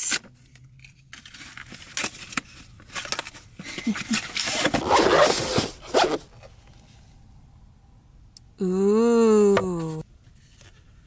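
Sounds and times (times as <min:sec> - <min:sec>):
packaging clicks and scrapes: 0:00.0 - 0:06.5
zipper being unzipped: 0:04.4 - 0:06.2.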